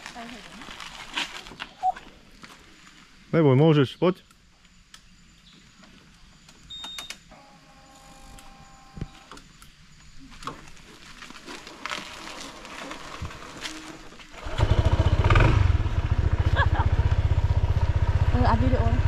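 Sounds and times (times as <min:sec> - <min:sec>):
scooter engine running: 0:12.6 - 0:19.0.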